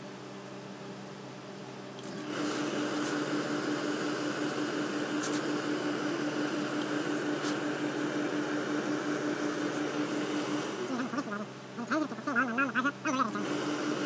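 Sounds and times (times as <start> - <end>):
steam iron hissing: 2.1 - 11.0.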